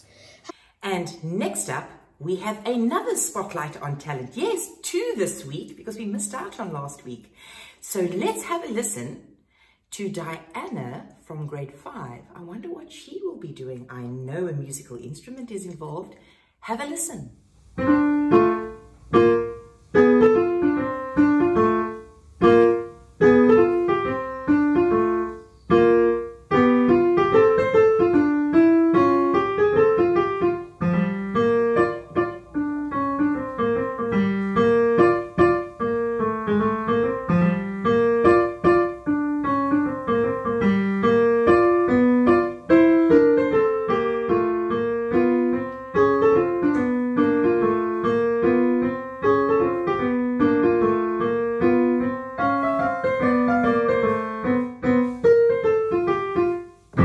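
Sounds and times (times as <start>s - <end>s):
solo piano: 17.7s - 57.0s.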